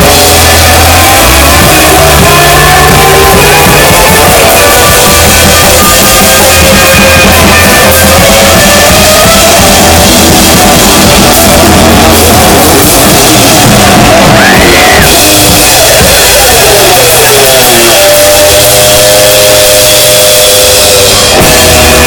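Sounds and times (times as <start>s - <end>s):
bass guitar: 0.0s - 22.0s
drum kit: 0.0s - 22.0s
electric guitar sliding notes: 0.0s - 22.0s
full band hit: 0.0s - 22.0s.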